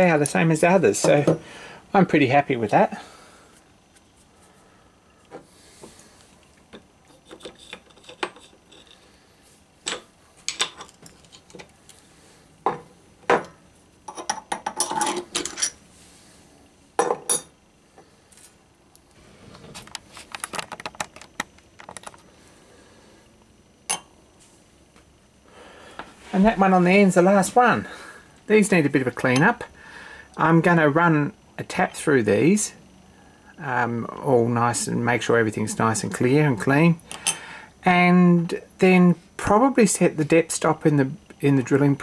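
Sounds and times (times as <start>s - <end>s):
metal parts clinking on metal: 14.1s - 15.8s.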